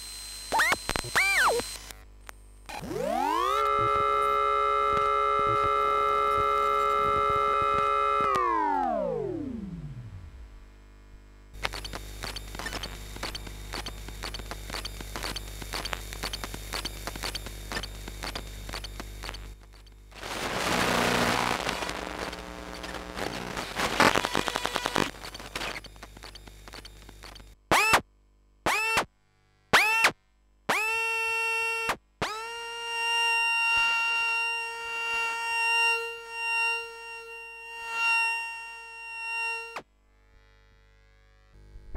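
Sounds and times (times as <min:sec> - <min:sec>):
held electronic tone: 0:00.0 - 0:01.9, 0:02.7 - 0:09.8, 0:33.5 - 0:39.8
low hum with buzzy ticking: 0:00.0 - 0:41.9.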